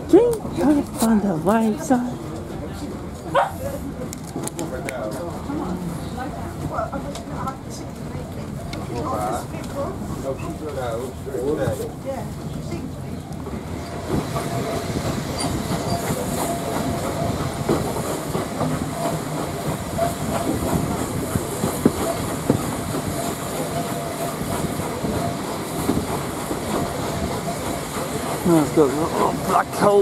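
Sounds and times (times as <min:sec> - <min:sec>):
train rumble: 0:00.0 - 0:30.0
wheels squealing: 0:13.7 - 0:18.0.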